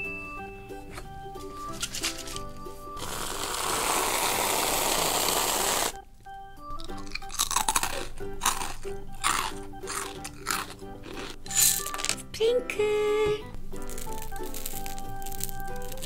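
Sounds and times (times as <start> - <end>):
aerosol whipped cream can hissing: 3.0 - 6.0
crunchy chewing of cereal: 3.0 - 6.0, 6.8 - 12.2, 13.8 - 16.0.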